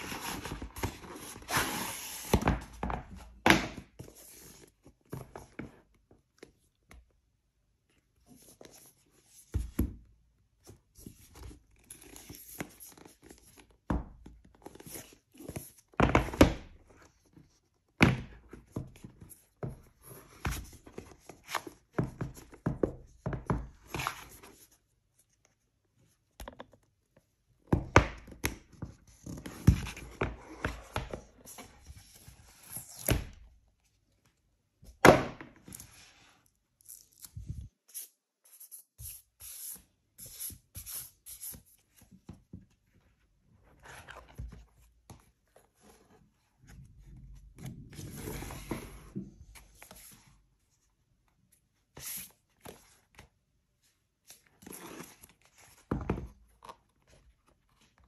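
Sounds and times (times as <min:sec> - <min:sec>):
cardboard rustling and scraping: 0:00.0 - 0:05.9, 0:41.5 - 0:50.9.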